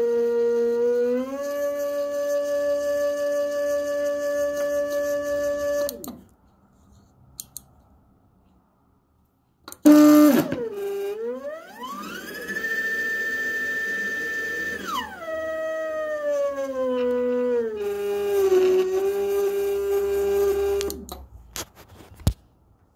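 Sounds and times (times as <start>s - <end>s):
stepper motor whining: 0.0s - 6.2s, 9.8s - 21.2s.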